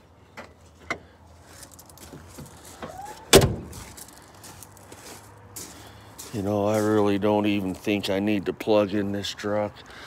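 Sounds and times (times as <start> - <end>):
door slamming shut: 3.1 - 3.8.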